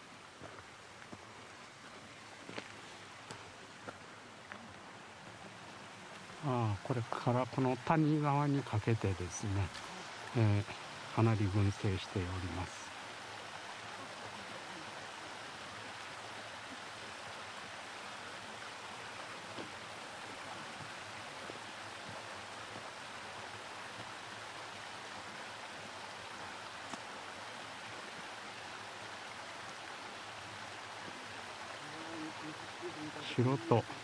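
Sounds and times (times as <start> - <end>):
rushing outdoor ambience: 0.0 - 34.0
faint ticks: 26.8 - 27.1.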